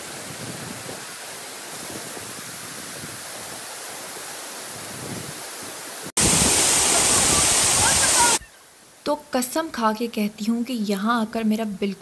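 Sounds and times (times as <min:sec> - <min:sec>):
waterfall rushing: 0:02.7 - 0:08.9.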